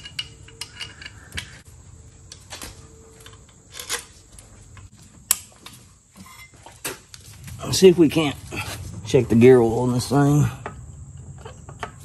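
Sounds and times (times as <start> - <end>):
hand tools clicking on metal parts: 0.0 - 1.7.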